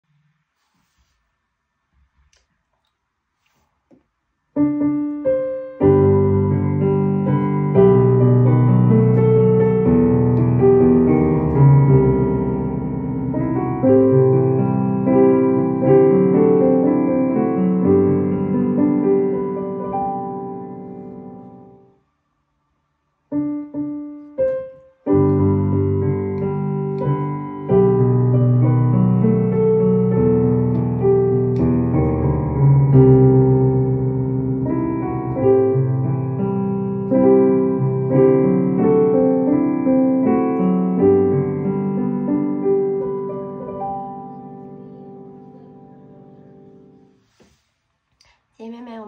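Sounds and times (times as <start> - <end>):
digital piano chords and melody: 4.6 - 22.0, 23.3 - 47.4.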